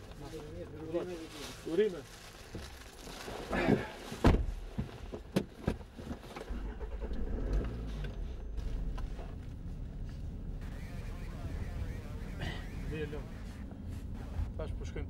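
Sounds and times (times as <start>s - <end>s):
car engine starting and running: 5.6s - 15.0s.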